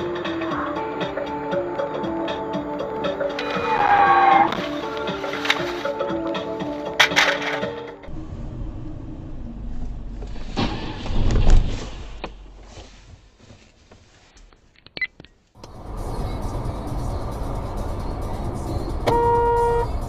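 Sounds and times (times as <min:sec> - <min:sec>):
car engine and road hum: 0:00.0 - 0:20.0
muffled car crash: 0:07.0 - 0:12.8.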